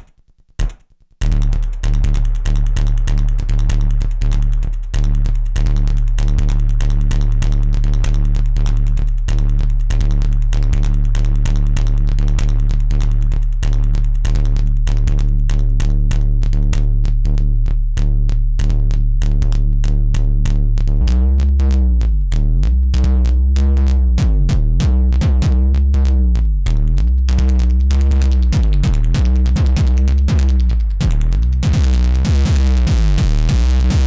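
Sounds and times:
sustained synth bass tone: 1.2s - 34.0s
electronic drum hits: 28.5s - 34.0s.

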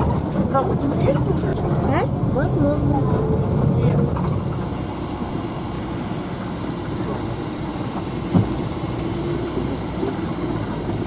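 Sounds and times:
vehicle engine running: 0.0s - 11.0s
knock from a bump: 8.3s - 8.6s.

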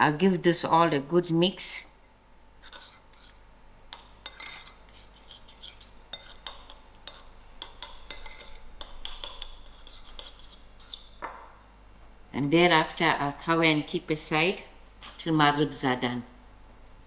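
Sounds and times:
spoon stirring in ceramic bowl: 2.6s - 11.3s.

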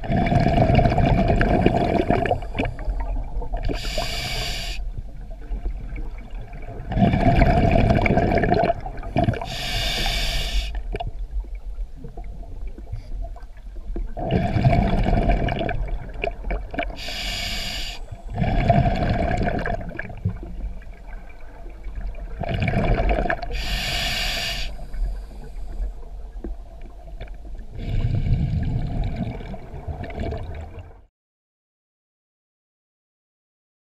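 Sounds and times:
exhaled bubbles rumbling: 0.0s - 4.1s, 4.9s - 9.7s, 10.8s - 23.8s, 24.8s - 31.1s
regulator hiss on inhale: 3.7s - 4.9s, 9.4s - 10.8s, 17.0s - 18.4s, 23.5s - 26.0s.

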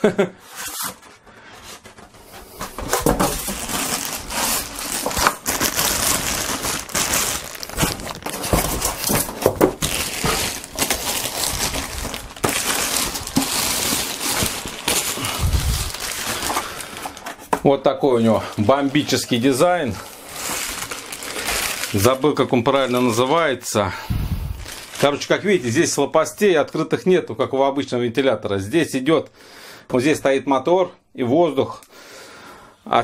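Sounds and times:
plastic and paper crinkling: 0.6s - 25.8s.

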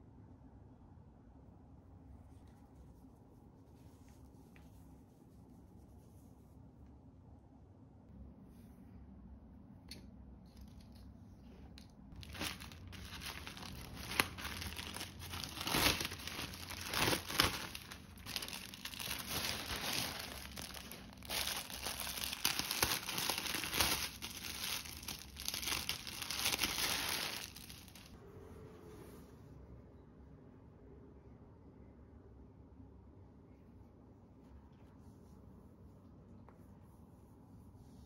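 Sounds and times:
plastic packaging crinkling: 12.1s - 28.2s.

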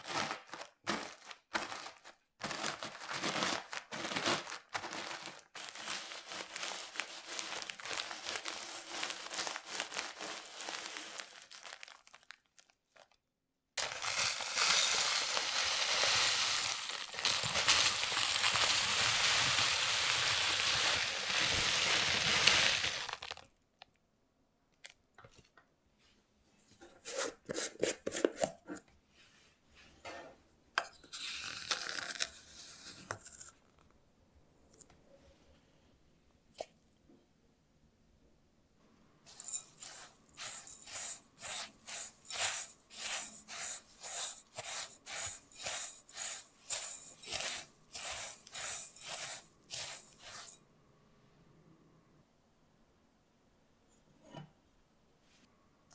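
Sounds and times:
plastic spoon scooping powder: 4.2s - 12.2s, 13.8s - 23.5s, 26.8s - 28.9s, 39.3s - 50.6s
crumbs poured into glass bowl: 5.2s - 12.4s, 13.8s - 23.5s, 39.3s - 50.6s
spoon stirring crumbs in glass bowl: 13.8s - 23.4s, 39.3s - 50.6s.

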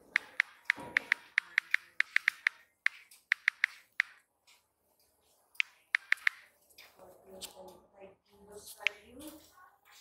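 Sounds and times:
phone keyboard clicks: 0.1s - 4.2s, 5.6s - 6.5s.

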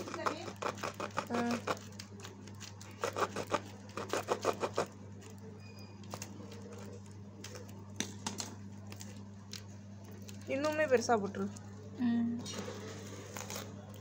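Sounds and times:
knife cutting plastic sheet: 0.0s - 4.9s
steady low hum: 0.0s - 14.0s.

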